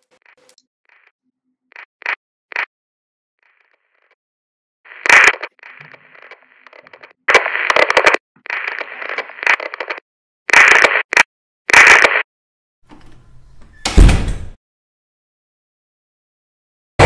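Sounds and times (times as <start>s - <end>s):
static and digital glitch noise: 0.0s - 2.7s, 4.9s - 12.3s.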